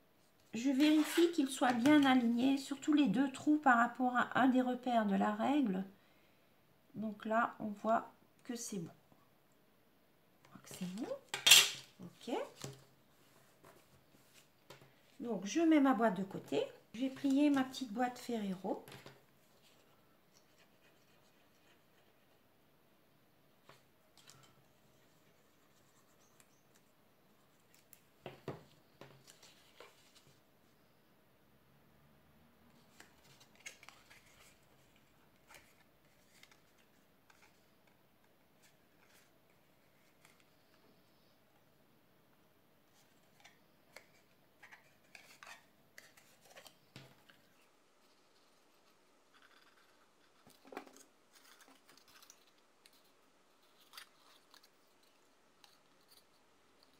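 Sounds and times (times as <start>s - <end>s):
cardstock creasing and rustling: 32.8s - 37.8s, 42.9s - 56.9s.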